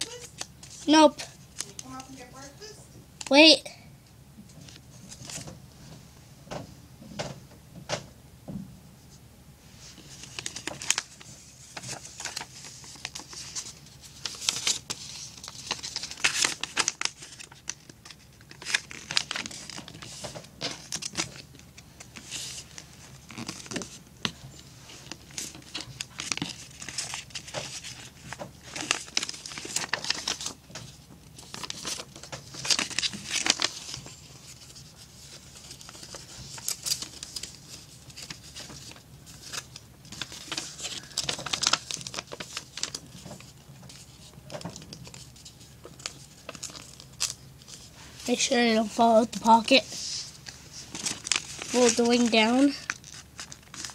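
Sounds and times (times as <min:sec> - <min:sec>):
paper rustling and crinkling: 0:00.0 - 0:02.4, 0:04.5 - 0:05.6, 0:09.7 - 0:53.9.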